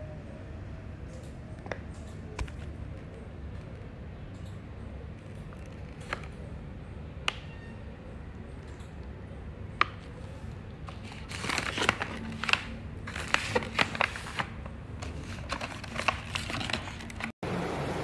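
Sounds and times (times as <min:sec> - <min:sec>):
plastic pouches crinkling: 0:09.8 - 0:17.3.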